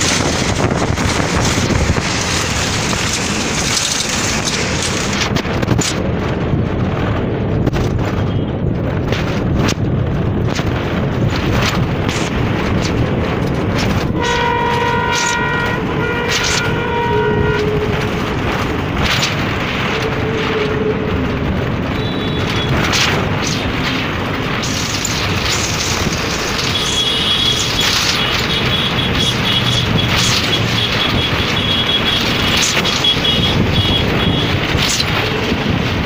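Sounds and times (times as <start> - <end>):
bus engine and road noise: 0.0 - 36.0
wind rush: 0.0 - 36.0
multi-tone vehicle horn: 14.1 - 18.7, 19.7 - 22.9, 26.6 - 34.8.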